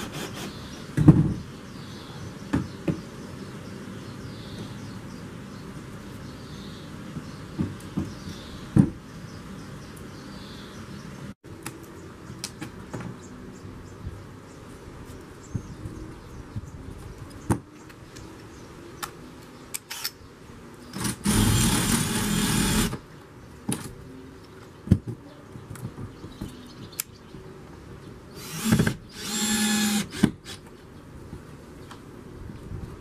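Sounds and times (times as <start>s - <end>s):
cordless drill running: 21.0s - 23.0s, 28.4s - 30.6s.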